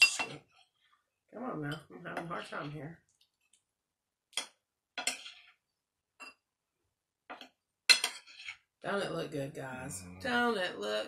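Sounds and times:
metal spoon clinking against dishes: 7.3 - 8.5.

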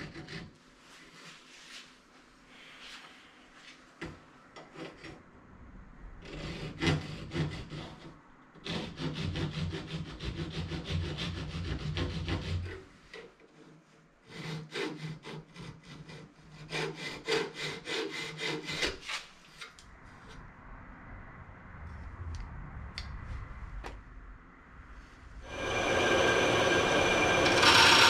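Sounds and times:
hand saw cutting metal: 0.0 - 0.5, 6.3 - 12.8, 14.2 - 19.3, 25.5 - 28.0.

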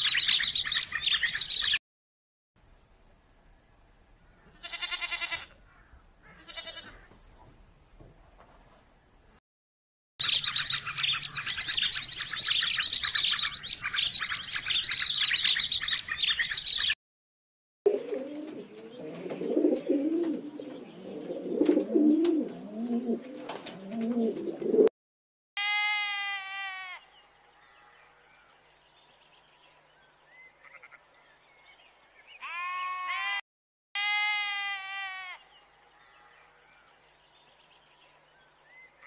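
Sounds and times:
lamb bleat: 4.5 - 5.6, 6.2 - 7.1, 25.6 - 27.1, 30.6 - 31.0, 32.4 - 33.4, 34.0 - 35.5
parrot chirping: 10.2 - 17.0
pigeon cooing: 17.9 - 24.9.

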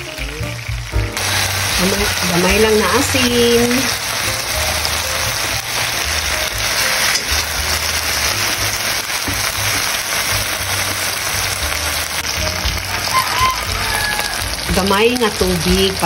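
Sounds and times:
background music with bass: 0.0 - 16.0
fish sizzling in hot oil: 0.0 - 16.0
spatula moving in wok: 1.2 - 13.8.

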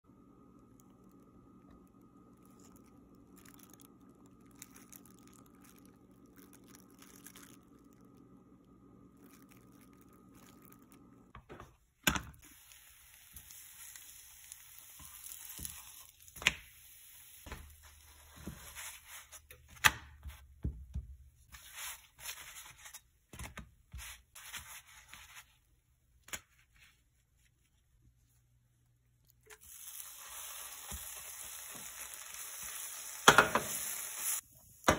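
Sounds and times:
flatbread hissing in a frying pan: 12.4 - 19.4, 29.6 - 34.5.

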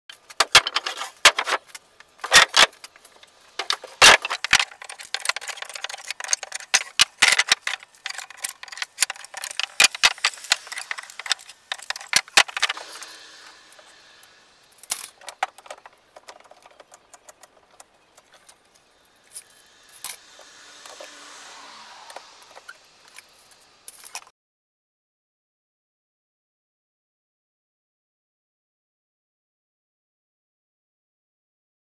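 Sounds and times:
wooden boards clattering: 0.2 - 13.0, 14.9 - 18.5.

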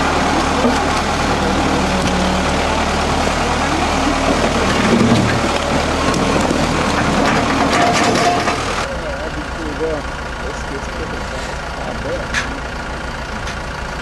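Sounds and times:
boulders and dirt tumbling: 0.0 - 8.9
loader engine running: 0.0 - 14.0.

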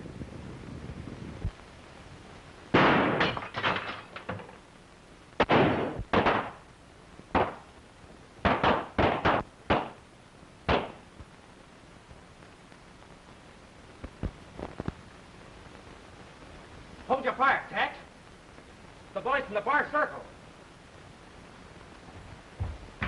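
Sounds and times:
gunshots with short echo: 2.7 - 3.4, 5.4 - 6.6, 8.4 - 10.0.

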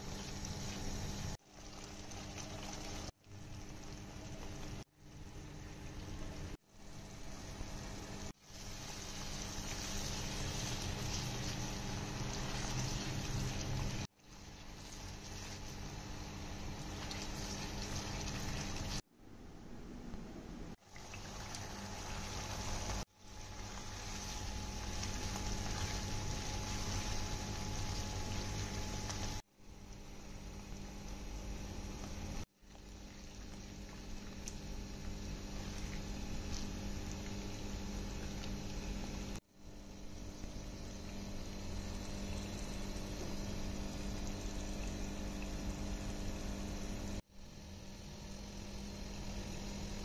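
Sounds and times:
gravy sizzling in a pan: 0.0 - 19.0, 20.8 - 29.4
steady low hum: 2.0 - 50.0.

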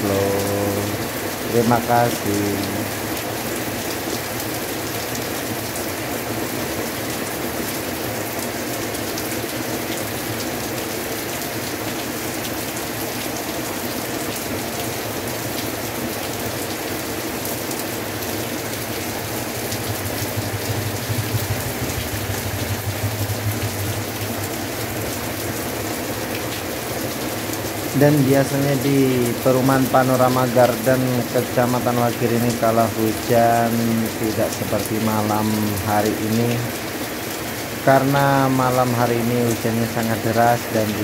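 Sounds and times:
heavy rain pouring: 0.0 - 41.0
low rumble: 19.6 - 25.2.

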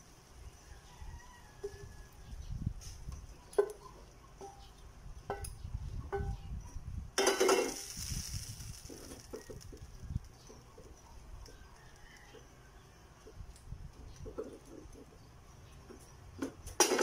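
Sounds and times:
hot pan sizzling hiss: 7.2 - 10.4.

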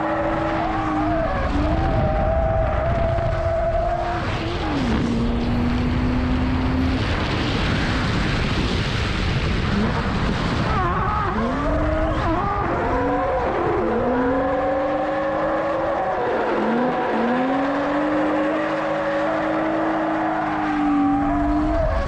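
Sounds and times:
wind rumble on microphone: 1.2 - 13.9.

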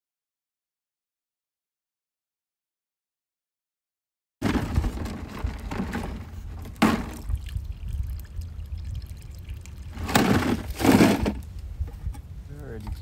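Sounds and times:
jug knocking: 4.4 - 7.5
water pouring from jug: 6.6 - 11.2.

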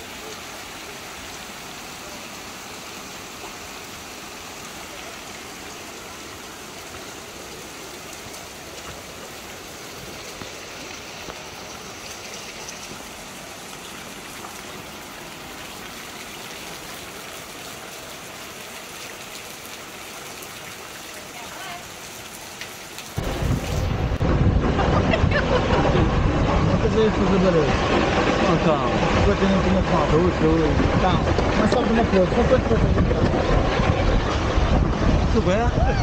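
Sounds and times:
flowing water rushing: 0.0 - 36.0.

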